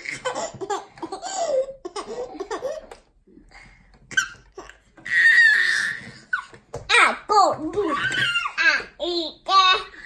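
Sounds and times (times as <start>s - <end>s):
baby giggling: 0.0s - 3.1s.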